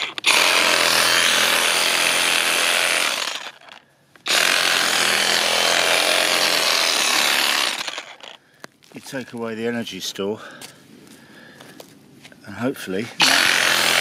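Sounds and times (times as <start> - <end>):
reciprocating saw cutting soil: 0.0 - 8.4, 13.2 - 14.0.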